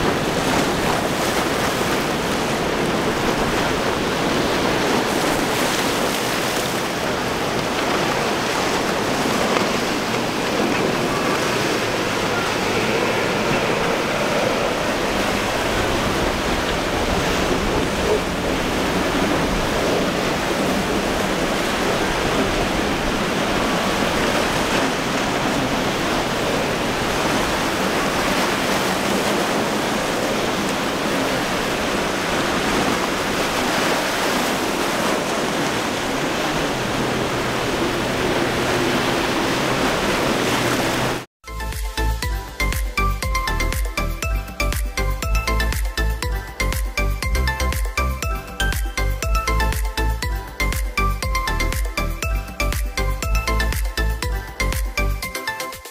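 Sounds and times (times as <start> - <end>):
wind buffeting microphone: 0.0 - 41.3
surf breaking: 0.0 - 41.8.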